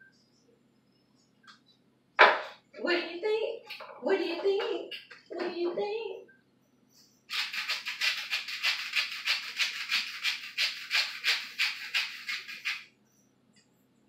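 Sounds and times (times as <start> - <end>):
rapid scraping strokes: 7.3 - 12.8.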